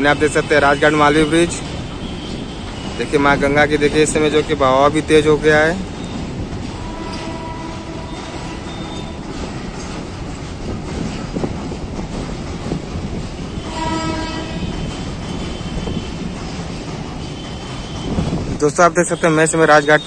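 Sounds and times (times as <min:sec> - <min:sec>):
train rumbling across steel bridge: 0:00.0 - 0:20.0
train horn blast: 0:06.8 - 0:09.2, 0:13.6 - 0:16.2.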